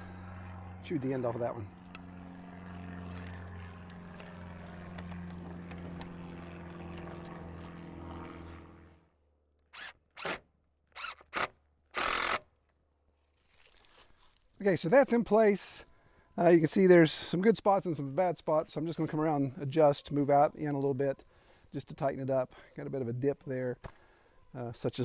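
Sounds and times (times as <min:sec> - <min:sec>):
steady low hum: 0:00.0 - 0:09.2
cordless drill driving screw into wood: 0:09.7 - 0:12.4.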